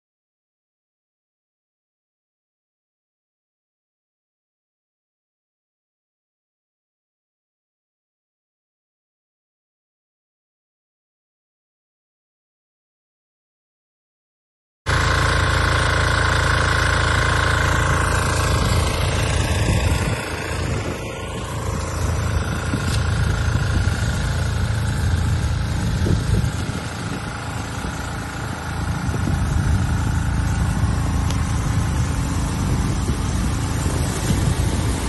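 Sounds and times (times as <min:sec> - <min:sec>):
vehicle engine rumbling: 0:14.9 - 0:35.0.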